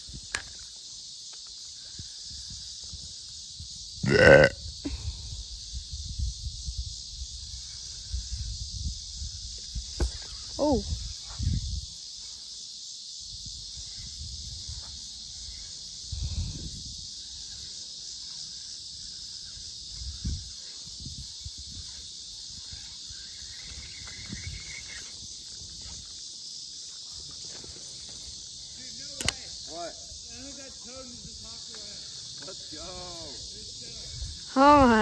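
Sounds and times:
insects buzzing: 0.0 - 35.0
sharp click: 29.2 - 29.4.

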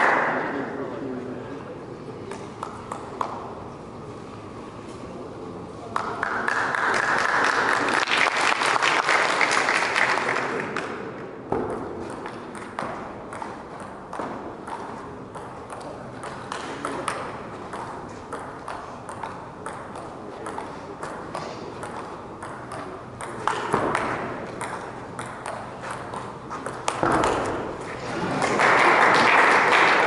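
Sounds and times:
spectators applauding: 6.0 - 10.9, 28.2 - 30.0
table tennis ball clicks: 11.6 - 27.8.

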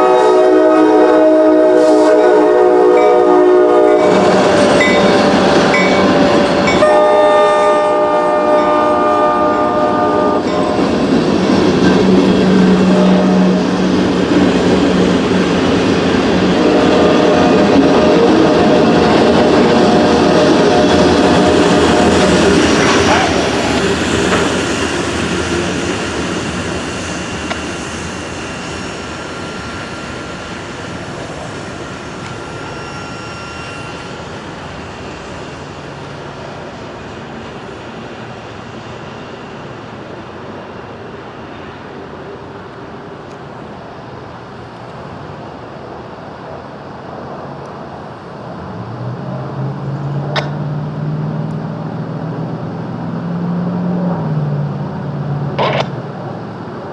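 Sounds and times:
train cars rumbling on track: 0.0 - 56.9
high wheel squeal: 2.9 - 9.1, 16.5 - 40.1.

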